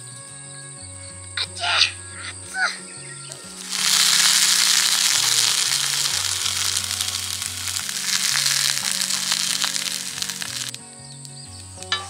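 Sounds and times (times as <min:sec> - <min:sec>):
background music: 0:00.0 - 0:12.0
food sizzling in hot pan: 0:03.4 - 0:12.0.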